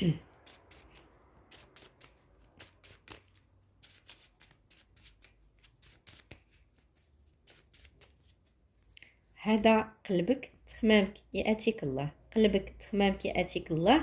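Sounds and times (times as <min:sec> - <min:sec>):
cards being shuffled: 0:00.4 - 0:09.0.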